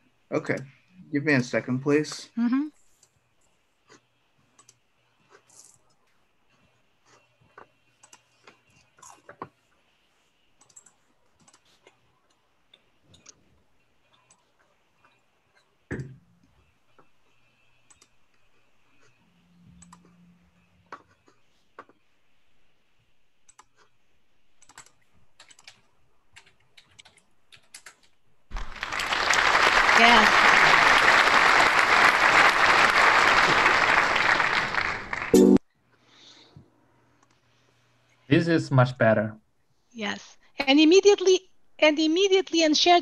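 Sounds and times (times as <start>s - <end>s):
computer mouse and keyboard clicks: 3.9s - 6.0s, 7.1s - 9.6s, 10.6s - 16.2s, 16.9s - 19.2s, 19.8s - 20.2s, 23.4s - 28.2s
recorded applause sound effect: 28.5s - 35.6s.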